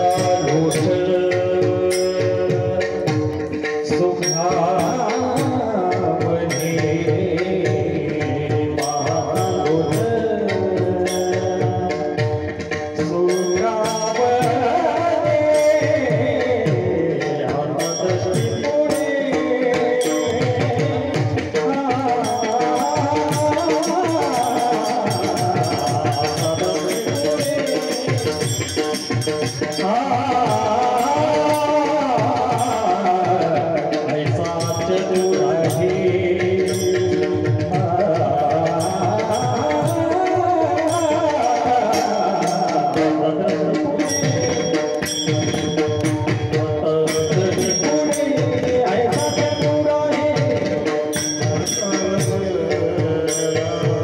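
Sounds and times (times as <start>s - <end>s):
man singing into a microphone: 0.0s - 54.0s
sharp percussion strikes: 0.0s - 54.0s
tabla: 0.0s - 54.0s.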